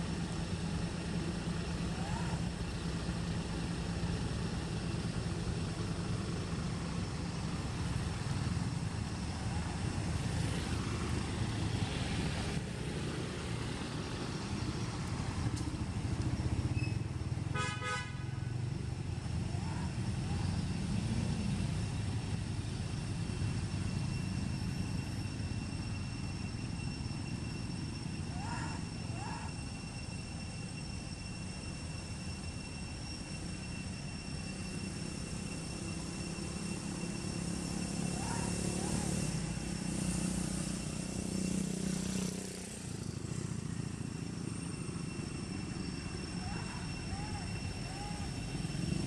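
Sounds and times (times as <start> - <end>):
rumble of motor traffic: 0.0 - 49.0
vehicle horn toot: 17.5 - 18.5.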